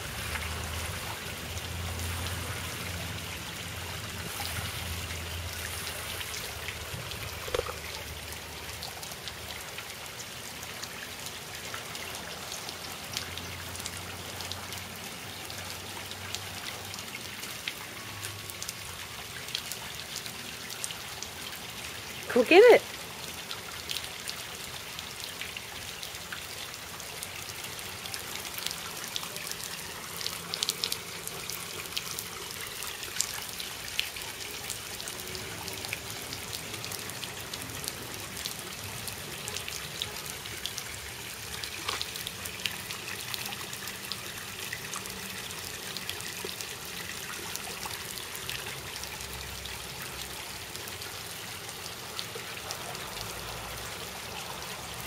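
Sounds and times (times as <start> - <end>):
sprinkler spraying on pavement: 0.0 - 3.0
short clicks and splashes: 7.3 - 8.0.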